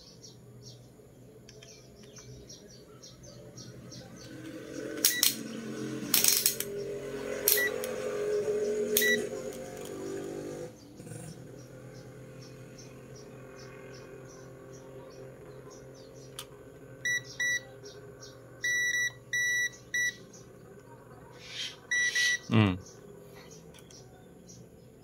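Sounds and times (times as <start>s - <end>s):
multimeter short beeps: 9.0s - 9.2s, 17.1s - 17.6s, 18.6s - 20.2s, 21.9s - 22.5s.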